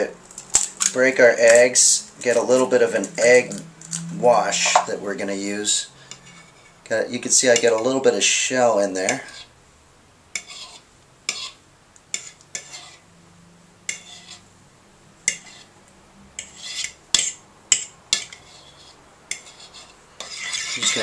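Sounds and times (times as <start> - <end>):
fork scraping ceramic bowl: 6.1 - 8.0, 9.0 - 9.5, 10.4 - 13.0, 13.9 - 14.5, 15.3 - 15.8, 16.4 - 21.0.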